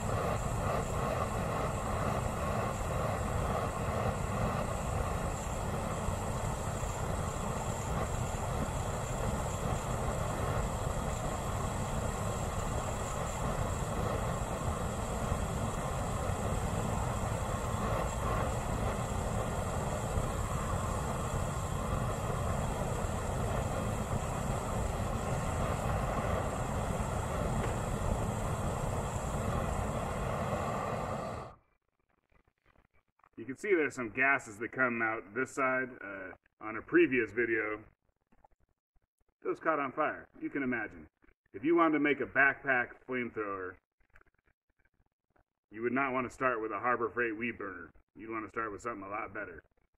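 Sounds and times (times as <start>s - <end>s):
flamethrower roaring: 0.0s - 31.6s.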